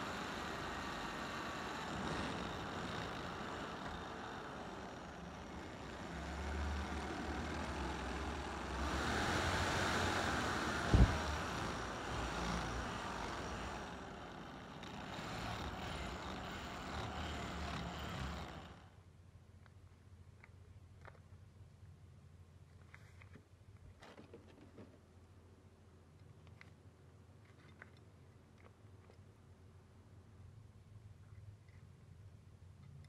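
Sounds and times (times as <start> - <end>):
drill press boring steel: 0.0 - 18.9.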